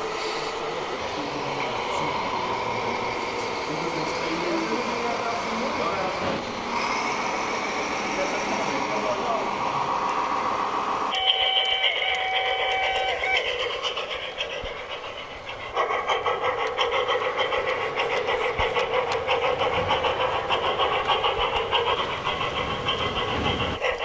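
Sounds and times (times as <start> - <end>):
rhythmic locomotive running sound: 0.0 - 24.0
steam locomotive whistle: 11.1 - 13.6.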